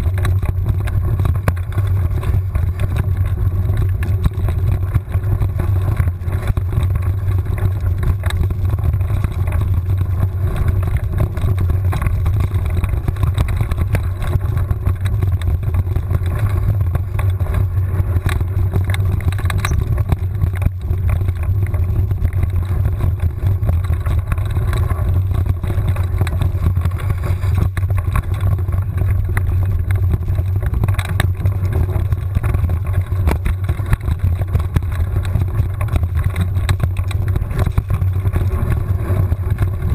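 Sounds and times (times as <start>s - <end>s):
bike rattling and knocking: 0.0s - 39.9s.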